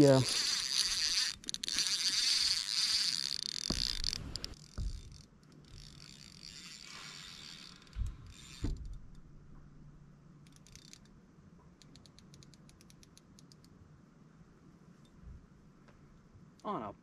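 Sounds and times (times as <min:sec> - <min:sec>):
fishing reel clicking: 0:00.0 - 0:09.0, 0:10.4 - 0:11.1, 0:11.8 - 0:13.7
dull thumps: 0:03.6 - 0:05.9, 0:07.9 - 0:09.8.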